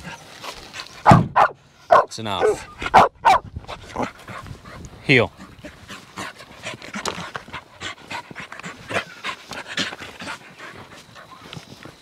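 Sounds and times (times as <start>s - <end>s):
dog panting: 3.7s - 12.0s.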